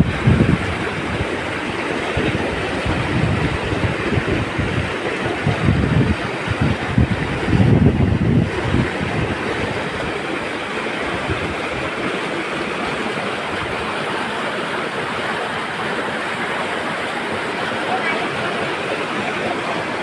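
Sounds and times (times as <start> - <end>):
wind buffeting microphone: 0.0 - 12.2
river water rushing over rocks: 0.0 - 20.0.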